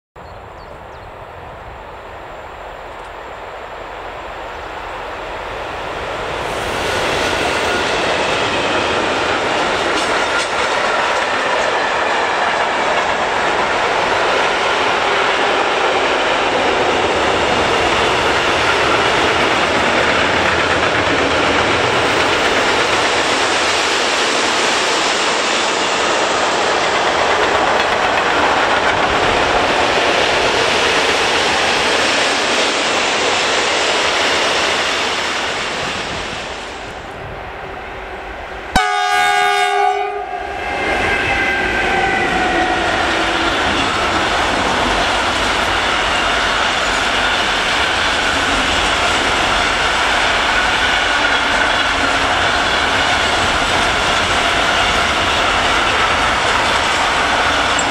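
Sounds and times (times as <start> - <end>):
freight train passing: 0.2 - 57.9
wheels clattering on rails: 7.0 - 36.1, 43.5 - 57.9.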